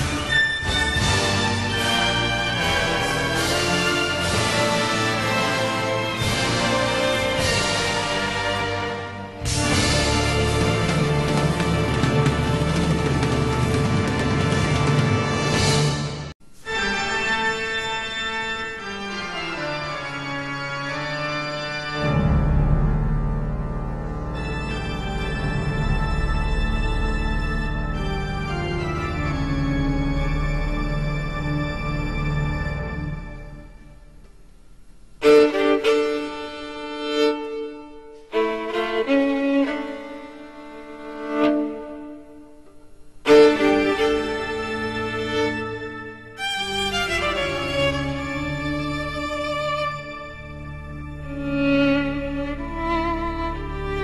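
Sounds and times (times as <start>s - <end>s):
soundtrack music with held chords: 0.0s - 16.3s, 17.0s - 34.4s
violin playing long held notes: 35.2s - 54.0s.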